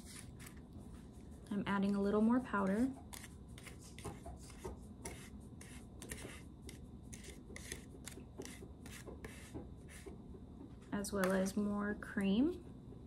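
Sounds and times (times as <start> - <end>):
metal spatula scraping plastic: 3.0 - 10.0.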